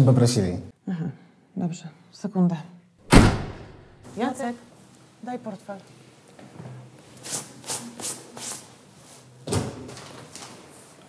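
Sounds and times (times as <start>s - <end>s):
door thump: 3.1s - 3.9s.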